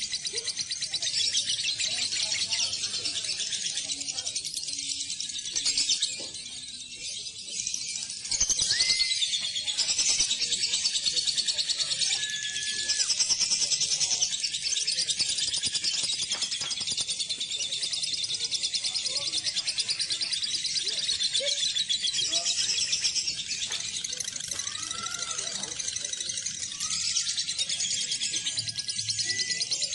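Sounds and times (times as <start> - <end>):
lovebirds chattering trill: 0.0 - 29.9
short whistled bird notes: 8.4 - 9.4.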